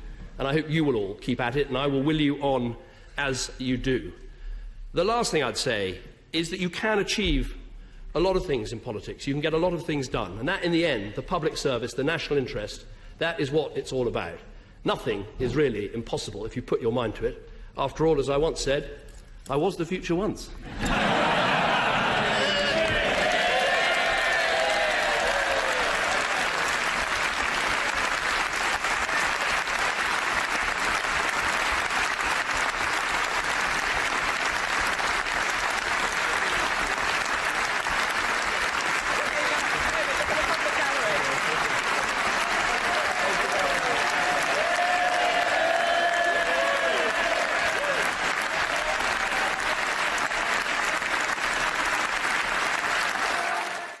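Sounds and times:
crowd applauding: 0:20.7 - 0:54.0.

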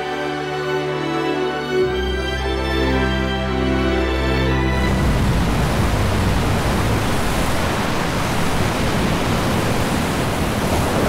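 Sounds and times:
whitewater crashing and churning: 0:04.6 - 0:11.0.

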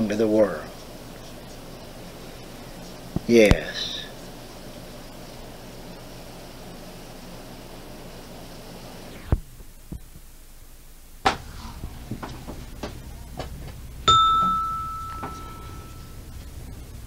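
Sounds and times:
background hiss: 0:00.0 - 0:17.0
clear ringing ding: 0:14.1 - 0:16.3.

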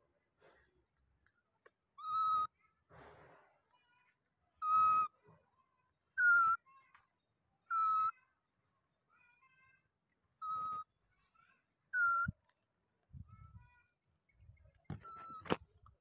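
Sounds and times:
baby monkey coo calls: 0:02.0 - 0:02.6, 0:07.6 - 0:08.3, 0:10.4 - 0:12.3.

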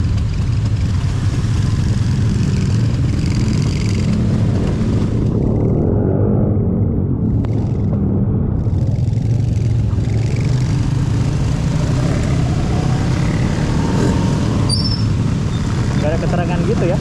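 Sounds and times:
vehicle engine running: 0:00.0 - 0:05.9.

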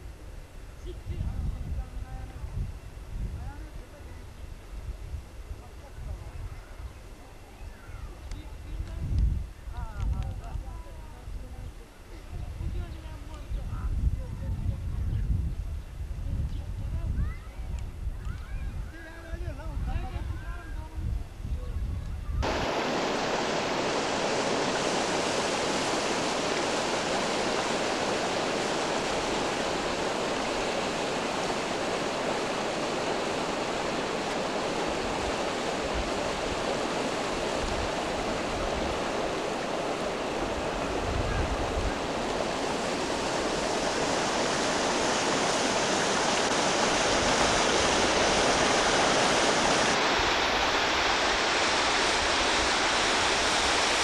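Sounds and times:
water rushing over rocks: 0:22.4 - 0:54.0.

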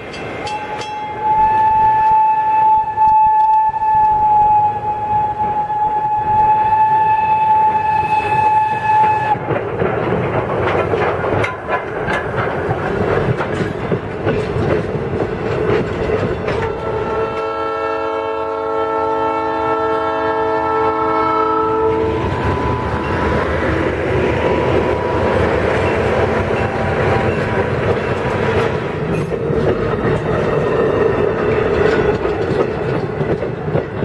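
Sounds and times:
train whistle: 0:00.6 - 0:09.4, 0:16.8 - 0:27.5
diesel locomotive horn: 0:00.7 - 0:09.4, 0:16.7 - 0:27.9
train wheels clattering: 0:07.6 - 0:18.5, 0:22.0 - 0:34.0.

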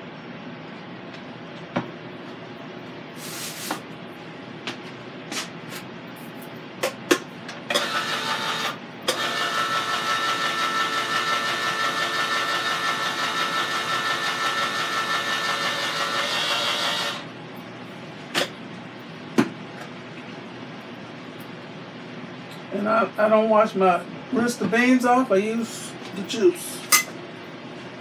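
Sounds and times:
electric can opener motor whine: 0:07.7 - 0:17.3.

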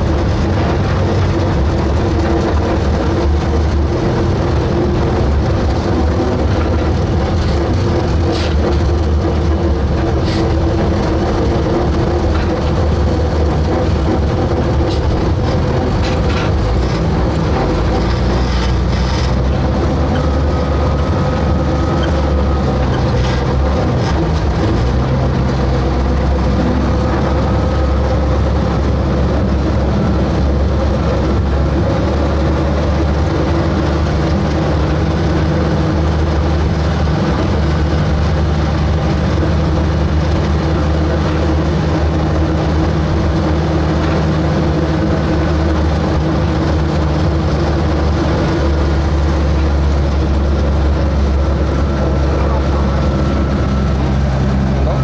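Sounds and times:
diesel locomotive engine running: 0:00.0 - 0:55.0.

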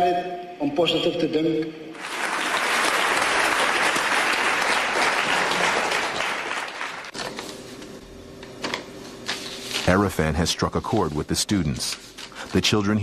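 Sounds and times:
children applauding: 0:02.0 - 0:07.1.

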